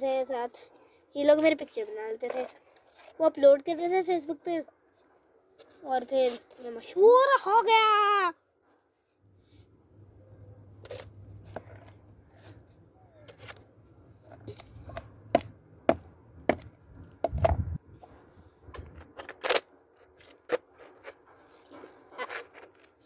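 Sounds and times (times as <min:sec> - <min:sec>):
light scraping: 0:00.5 - 0:07.1, 0:10.8 - 0:15.5, 0:17.0 - 0:23.0
sharp knocks and taps: 0:14.9 - 0:17.6.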